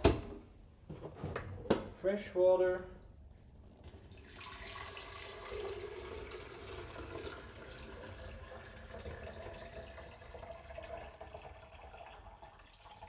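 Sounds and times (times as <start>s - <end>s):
water running into a tank: 3.8s - 13.0s.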